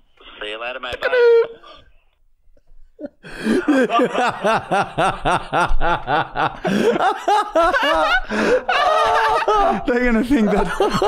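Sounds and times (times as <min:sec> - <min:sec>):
men laughing hard: 0:03.0 - 0:11.0.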